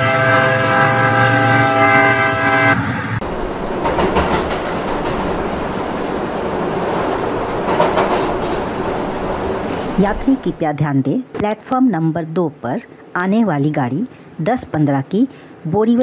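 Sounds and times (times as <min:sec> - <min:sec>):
train horn blaring: 0:00.0 - 0:03.2
train rumbling on rails: 0:00.0 - 0:10.9.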